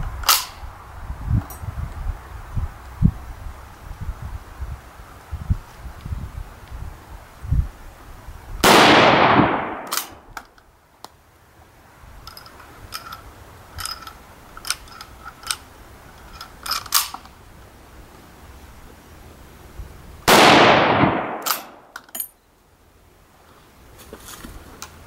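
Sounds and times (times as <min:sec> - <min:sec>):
rifle shot: 0:08.6 - 0:10.3, 0:20.3 - 0:21.9
rifle bolt clicking: 0:09.7 - 0:10.6, 0:16.3 - 0:17.3, 0:21.3 - 0:22.3.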